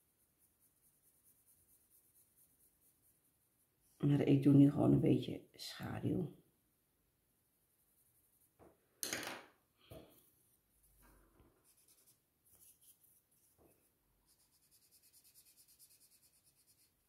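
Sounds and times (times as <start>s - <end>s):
drawing stick rubbing on paper: 0.0s - 4.0s, 11.6s - 13.6s, 14.2s - 17.0s
pencils clacking on wooden table: 8.6s - 10.1s.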